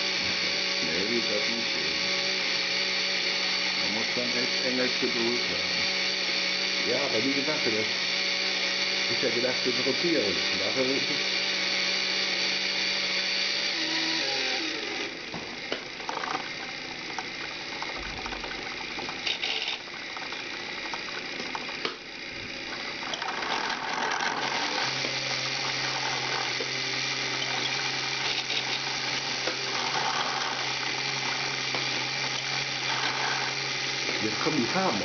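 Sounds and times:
motors whirring: 0.0 - 35.0
gears clicking rapidly: 15.6 - 35.0.

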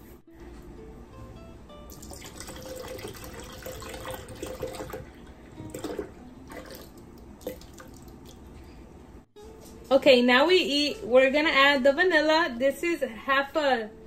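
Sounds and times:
milk pouring into blender jar: 1.9 - 8.4.

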